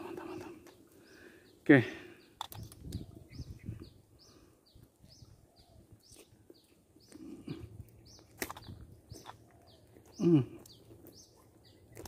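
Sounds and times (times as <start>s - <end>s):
small bird chirping: 0.0s - 12.0s
sharp click: 2.4s - 3.0s.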